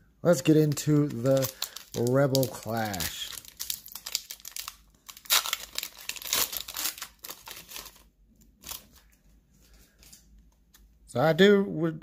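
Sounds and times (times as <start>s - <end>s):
foil wrapper crinkling and tearing: 0.4s - 9.1s.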